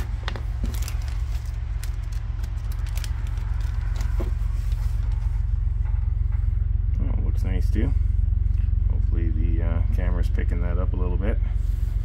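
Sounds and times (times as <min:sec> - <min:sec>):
plastic bag crinkling: 0:00.0 - 0:05.3
low rumble: 0:00.0 - 0:12.0.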